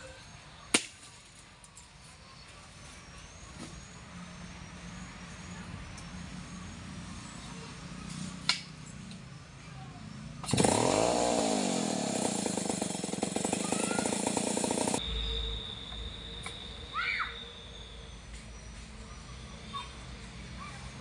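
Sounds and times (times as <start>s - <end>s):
chainsaw engine running: 10.4s - 15.0s.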